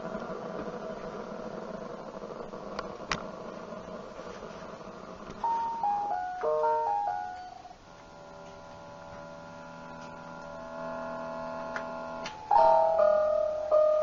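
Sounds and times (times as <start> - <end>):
electronic keyboard chord: 5.3 - 14.0
repeated keyboard note: 5.4 - 14.0.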